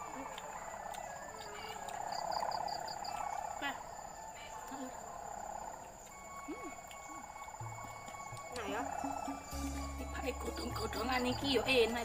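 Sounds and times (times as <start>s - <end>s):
insects trilling: 0.0s - 12.0s.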